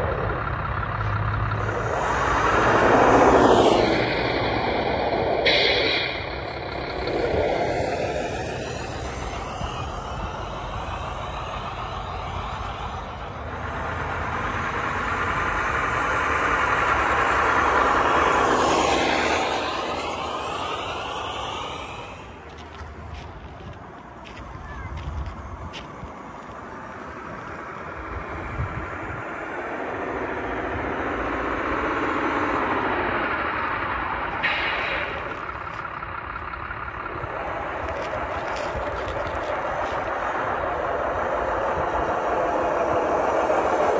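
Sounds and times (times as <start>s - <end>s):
toy truck driving on concrete: 0.0s - 43.9s.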